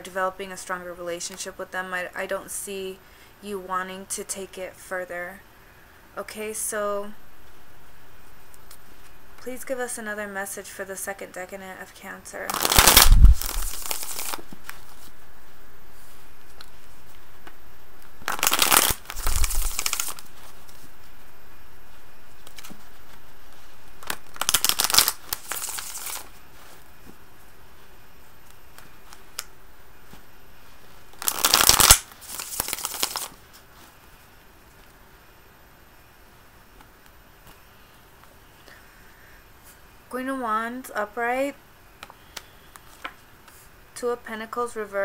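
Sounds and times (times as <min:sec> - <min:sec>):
cards being shuffled by hand: 0:12.4 - 0:15.2, 0:18.3 - 0:20.9, 0:22.4 - 0:27.2, 0:30.0 - 0:34.0.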